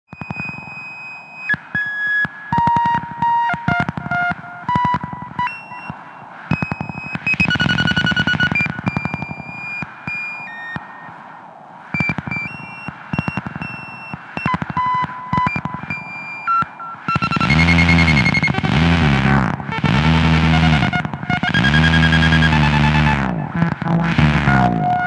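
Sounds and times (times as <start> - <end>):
rapid clicking pulse: 1.5 - 11.2, 11.9 - 25.0
synthesizer beeping tones: 2.6 - 11.1, 12.0 - 25.0
synthesizer buzzing: 12.0 - 25.0.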